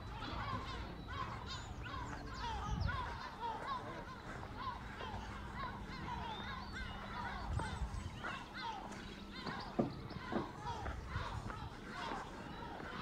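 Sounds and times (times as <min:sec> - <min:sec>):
distant indistinct voices: 0:00.0 - 0:13.0.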